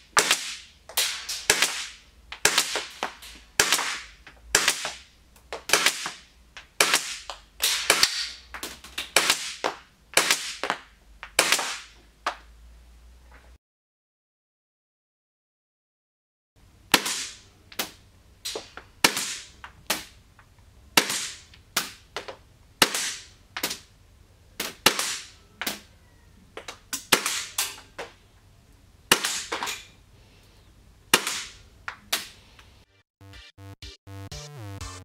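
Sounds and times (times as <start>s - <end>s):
airsoft pistol shots: 0.1s - 5.0s, 5.6s - 8.4s, 9.1s - 9.6s, 10.2s - 10.7s, 11.4s - 11.9s, 16.9s - 20.2s, 21.0s - 22.0s, 22.8s - 23.9s, 24.6s - 25.4s, 27.0s - 27.8s, 29.1s - 29.7s.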